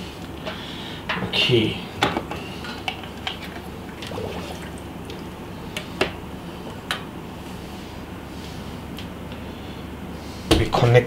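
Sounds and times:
water trickling: 4.0 - 5.2.

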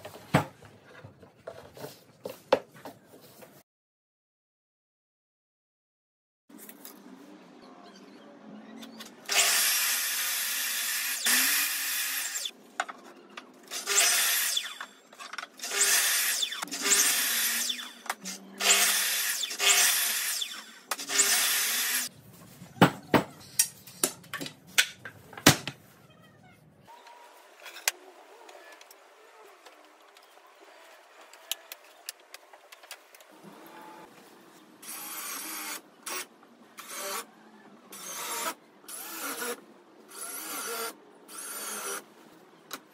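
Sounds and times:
cordless drill driving screws: 9.3 - 12.5, 18.6 - 22.1, 38.0 - 42.0
mitre saw cutting wood: 13.8 - 14.9, 15.6 - 22.1.

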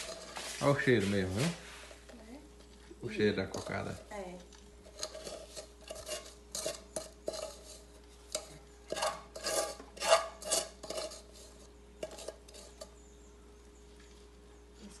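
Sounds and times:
spoon scraping a metal pot: 0.0 - 0.9, 3.4 - 4.1, 4.8 - 13.1.

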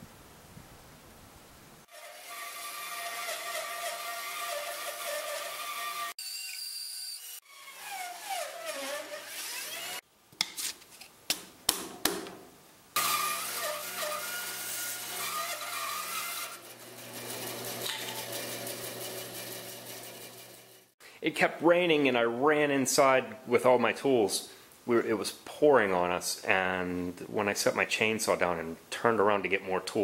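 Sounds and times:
bandsaw cutting wood: 1.9 - 10.0, 13.0 - 20.9
sharp knocks: 11.3 - 12.4.

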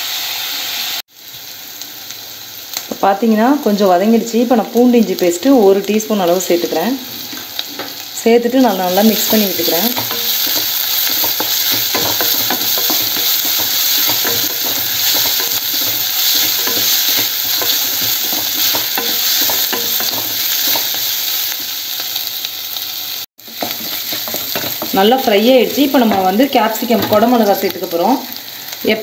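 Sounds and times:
onions sizzling in oil: 0.0 - 29.0
spatula scraping pan: 8.8 - 21.7, 23.4 - 25.3.

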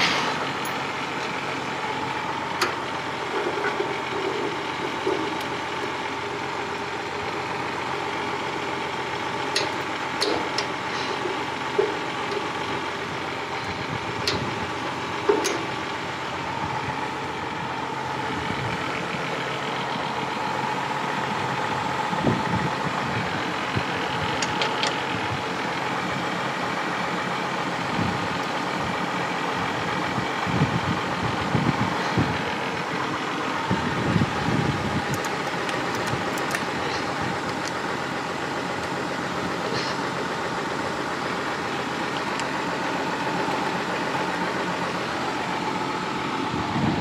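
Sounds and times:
diesel tractor engine idling: 0.0 - 47.0
sharp metallic clicks: 9.5 - 10.7, 35.1 - 37.8.

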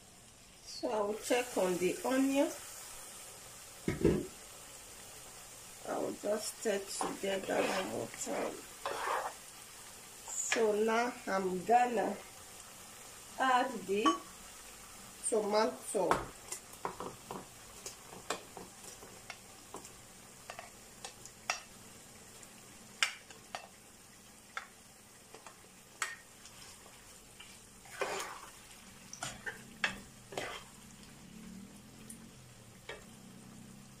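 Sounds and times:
faint frying sizzle: 0.0 - 34.0
spoon knocking plate and pan: 3.8 - 4.3, 14.0 - 14.3, 16.1 - 17.5, 20.5 - 21.7, 29.2 - 30.7
spoon scraping: 7.3 - 9.4, 29.2 - 30.8.

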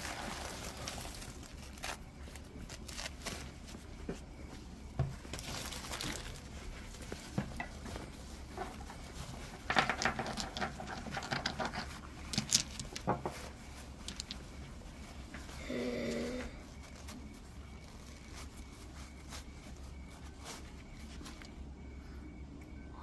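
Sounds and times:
wrapping material crackling: 0.0 - 21.7.

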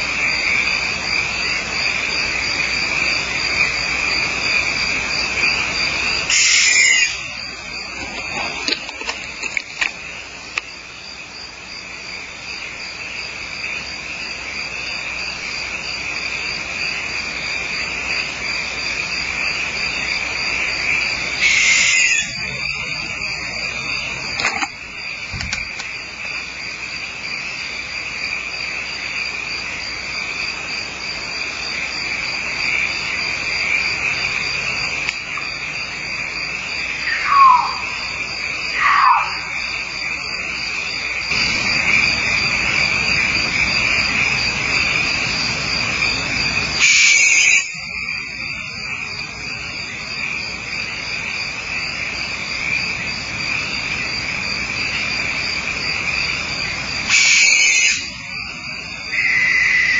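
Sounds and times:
insects trilling: 0.0 - 59.9
animal call falling in pitch: 37.1 - 38.0, 38.8 - 39.5.

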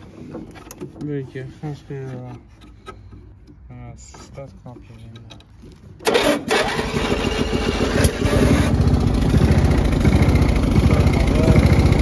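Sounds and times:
mower engine starting and running: 6.0 - 12.0.

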